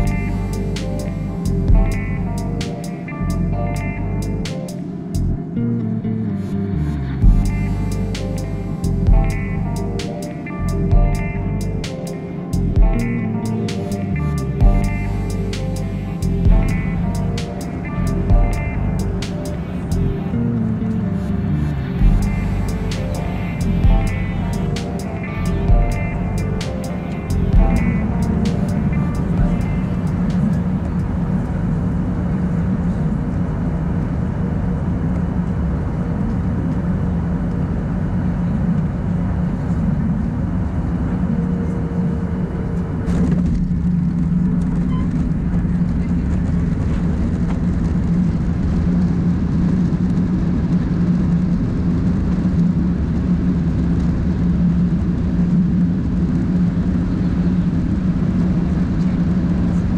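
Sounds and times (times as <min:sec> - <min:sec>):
aircraft cabin rumble: 0:00.0 - 0:59.9.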